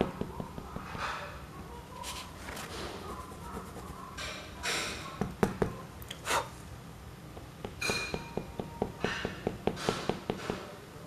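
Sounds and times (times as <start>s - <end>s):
pencil tapping on paper: 0.0s - 1.2s, 5.2s - 5.8s, 7.3s - 10.7s
swishes across paper: 2.0s - 4.0s.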